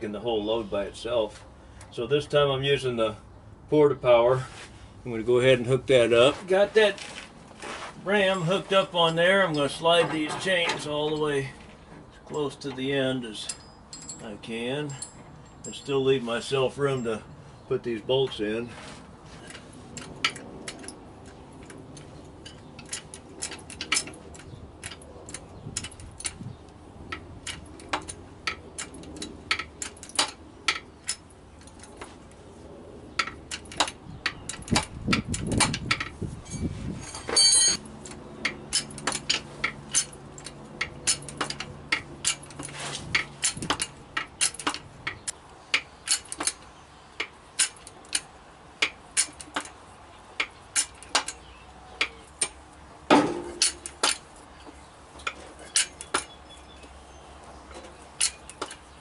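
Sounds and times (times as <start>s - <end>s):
hydraulic hand pump metallic clicks: 19.5s - 32.1s, 33.1s - 49.8s, 50.4s - 59.0s.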